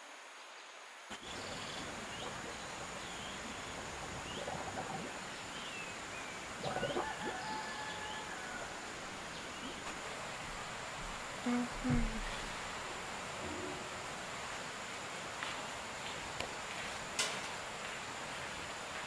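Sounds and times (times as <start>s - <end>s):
small birds chirping: 1.1s - 12.6s.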